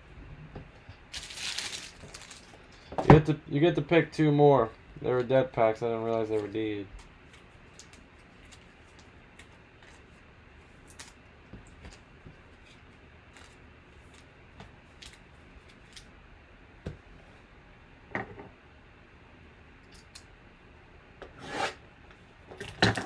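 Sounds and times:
foil packs crinkling: 1.1 - 2.6.

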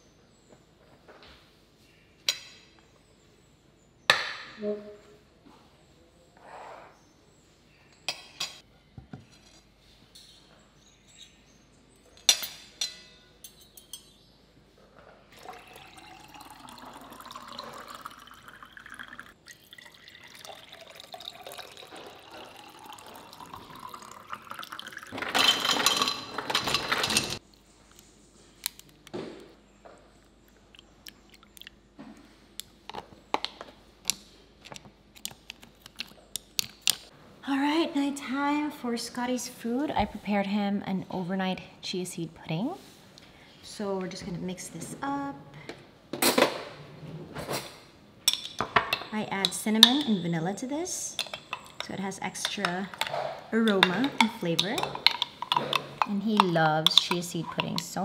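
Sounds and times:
dishes and cutlery clinking: 12.1 - 14.3, 22.0 - 27.4, 47.4 - 50.3, 51.1 - 58.0
water pouring into glass: 15.4 - 25.2.

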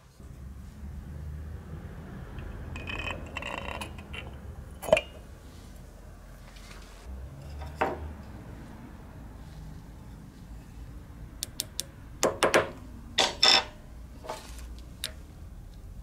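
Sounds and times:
metal parts clinking: 13.2 - 13.8.

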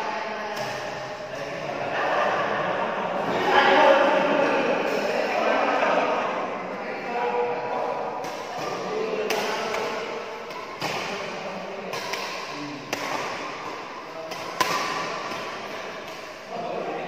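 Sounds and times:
echoing hall noise: 0.0 - 17.0
rackets smacking shuttlecock: 0.5 - 1.2, 7.8 - 16.5.

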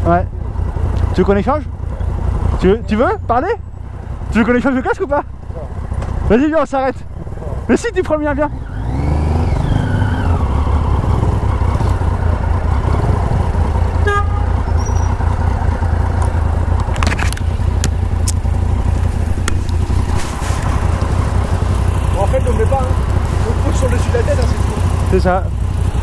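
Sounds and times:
motorcycle engine idling: 0.0 - 8.9, 9.6 - 26.0
car horn toot: 14.0 - 15.2
sharp clicks: 16.2 - 18.5.

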